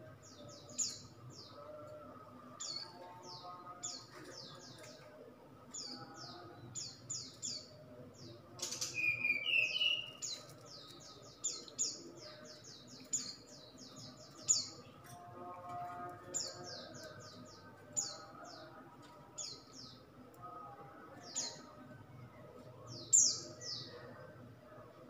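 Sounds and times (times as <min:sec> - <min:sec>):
bird whistling song: 0:08.8 - 0:10.2.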